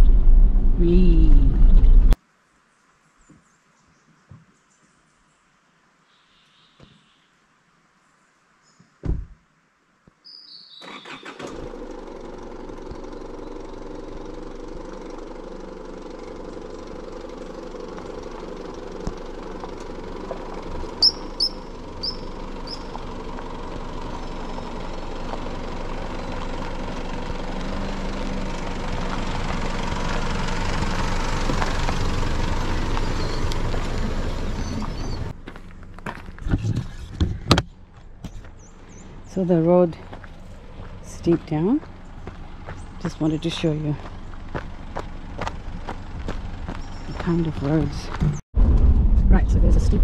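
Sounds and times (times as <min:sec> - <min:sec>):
vehicle engine passing by: 0:10.8 - 0:35.9.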